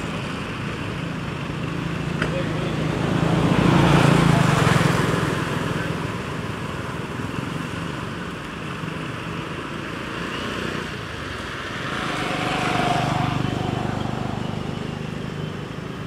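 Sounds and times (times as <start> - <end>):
vehicle engine rumble: 0.0 - 16.0.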